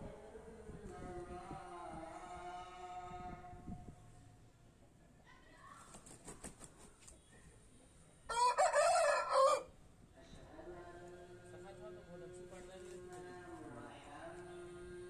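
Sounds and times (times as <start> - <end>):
rooster crowing: 8.3 - 9.7.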